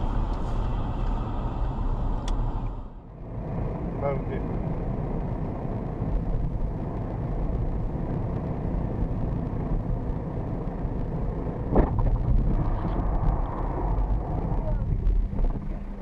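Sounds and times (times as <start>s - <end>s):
car road and engine rumble: 0.0s - 16.0s
loud thump: 11.7s - 13.0s.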